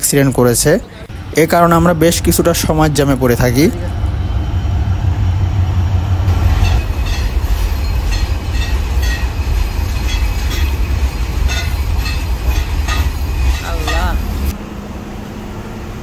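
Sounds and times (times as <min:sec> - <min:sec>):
train passing low rumble: 0:00.0 - 0:16.0
train wheels clacking on rail joints: 0:06.3 - 0:14.5.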